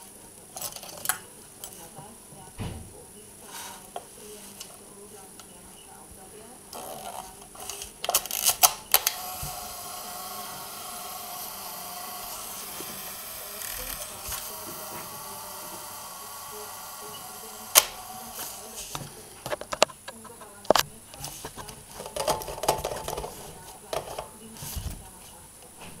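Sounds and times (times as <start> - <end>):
clockwork self-timer whirring: 6.8 - 19.6
camera self-timer clicks: 11.6 - 18.6
camera shutter click: 17.7 - 18.2.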